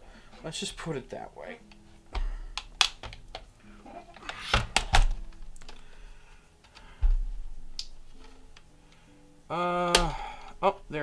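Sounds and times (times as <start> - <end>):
plastic clips snapping: 1.6 - 3.5, 4.1 - 5.8, 7.7 - 8.7, 9.8 - 10.6
heavier thuds: 7.0 - 7.5.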